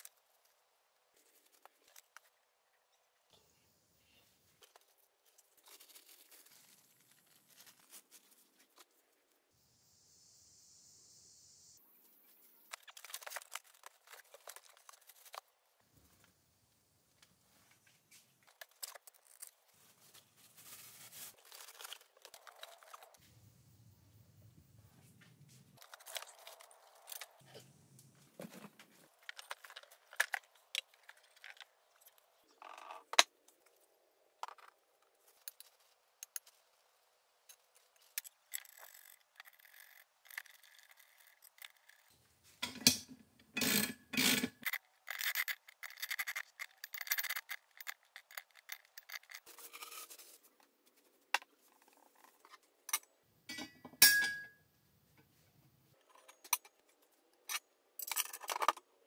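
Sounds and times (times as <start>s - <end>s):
bolts and washers clinking: 52.9s - 54.5s.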